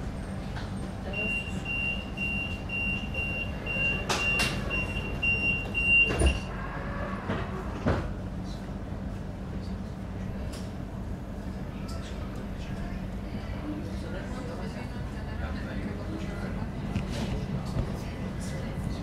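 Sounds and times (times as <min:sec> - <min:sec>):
train hum: 0:00.0 - 0:19.0
door warning beeper: 0:01.2 - 0:06.5.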